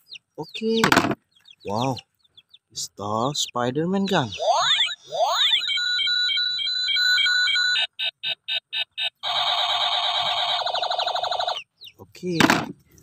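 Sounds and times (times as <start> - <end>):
toy pistol electronic sound effects: 4.1 - 11.7.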